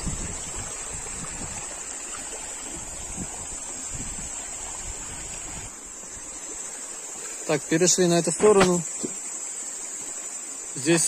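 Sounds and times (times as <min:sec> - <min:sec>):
wind rumble on microphone: 0:00.0 - 0:06.3
high-pitched insect chorus: 0:00.0 - 0:11.0
small stream running: 0:00.0 - 0:11.0.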